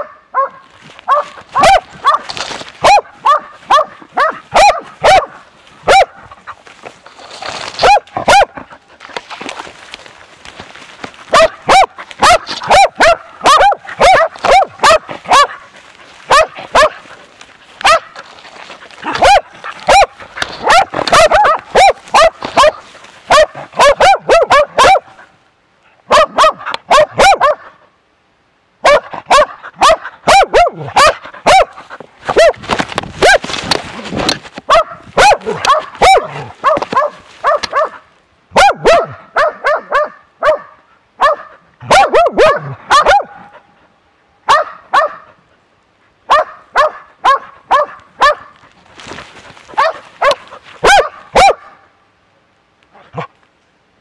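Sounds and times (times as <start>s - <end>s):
dog barking: 0.0s - 6.2s, 7.8s - 8.7s, 11.3s - 15.7s, 16.3s - 17.0s, 17.8s - 18.3s, 19.0s - 25.2s, 26.0s - 27.8s, 28.8s - 32.6s, 33.2s - 33.5s, 34.7s - 43.5s, 44.4s - 45.4s, 46.3s - 48.6s, 49.7s - 51.9s.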